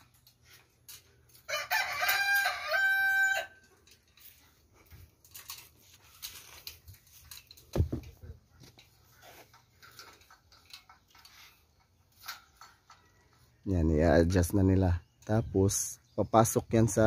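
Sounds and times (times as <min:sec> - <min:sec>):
rooster crowing: 0:01.5 - 0:03.6.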